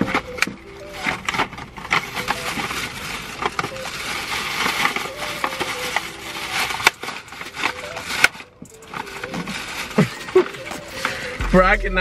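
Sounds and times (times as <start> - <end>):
plastic bag rustling: 0.0 - 11.4.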